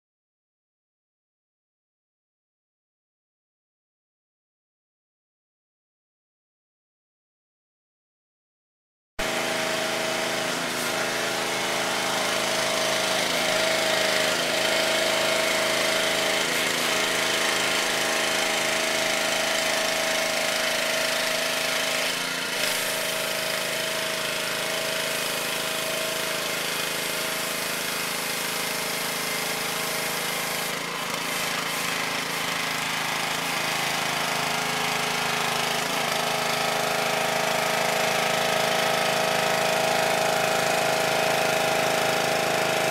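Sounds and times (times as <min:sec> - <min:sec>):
pressure washer motor droning: 0:09.2 - 0:42.9
water spray hissing on pavers: 0:21.6 - 0:37.2.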